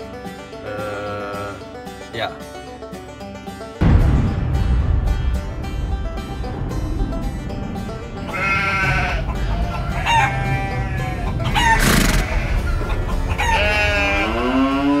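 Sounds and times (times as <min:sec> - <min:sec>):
low music: 0:00.0 - 0:15.0
rooster crowing: 0:09.8 - 0:12.0.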